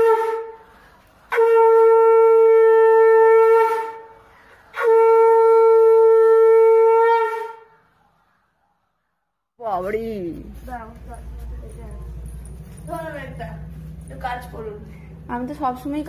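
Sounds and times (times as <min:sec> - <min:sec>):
conch shell blasts: 0:00.0 - 0:07.9.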